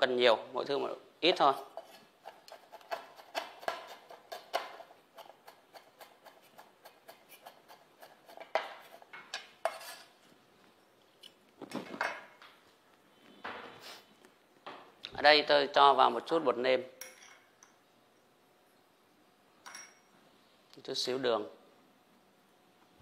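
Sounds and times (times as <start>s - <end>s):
knife chopping on wooden board: 2.2s - 8.8s.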